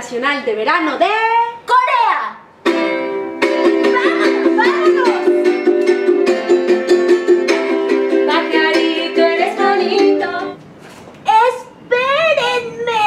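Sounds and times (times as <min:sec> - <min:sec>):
ukulele strumming: 0:02.6 - 0:10.6.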